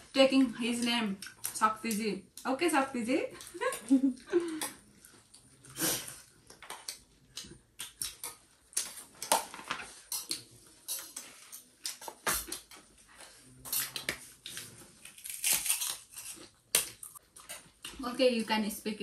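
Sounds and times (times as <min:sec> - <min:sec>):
crunching of crisp food: 0:13.8 - 0:17.6.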